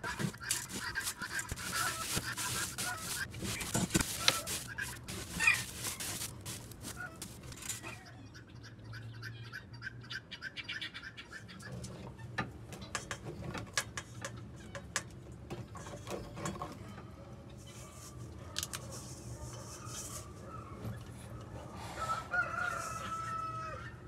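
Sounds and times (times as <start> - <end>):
handling clicks and knocks: 0.0 - 7.9
scraping strokes: 0.0 - 8.0.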